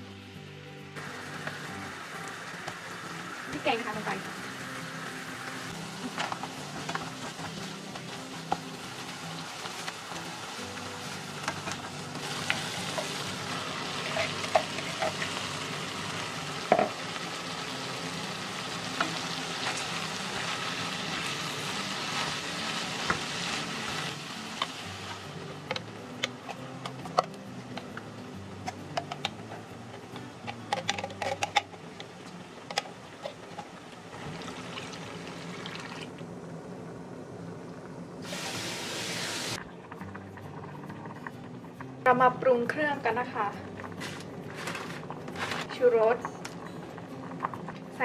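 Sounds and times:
food sizzling in a saucepan: 0:01.0 - 0:29.5, 0:31.5 - 0:36.1, 0:38.2 - 0:39.6
coconut milk pouring: 0:34.3 - 0:36.1.

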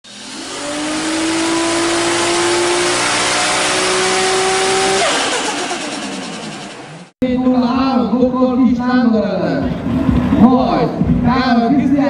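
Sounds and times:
car engine accelerating hard: 0:00.0 - 0:07.2.

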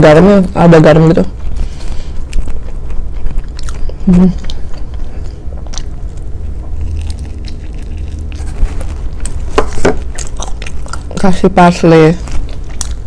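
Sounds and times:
low steady hum: 0:00.0 - 0:13.0
faint chewing: 0:01.2 - 0:13.0
crunchy toast bites: 0:05.7 - 0:11.3.

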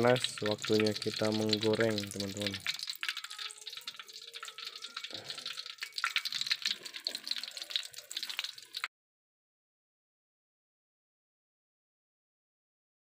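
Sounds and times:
hot oil sizzling and crackling: 0:00.0 - 0:08.9.

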